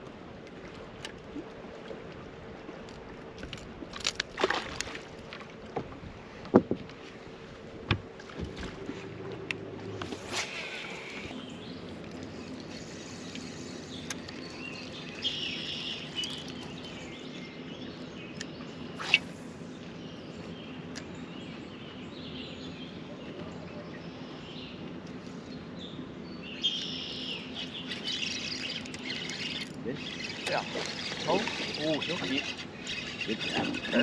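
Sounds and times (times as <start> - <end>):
steady low hum: 0.0 - 34.0
birds chirping and singing: 10.7 - 24.8, 25.4 - 34.0.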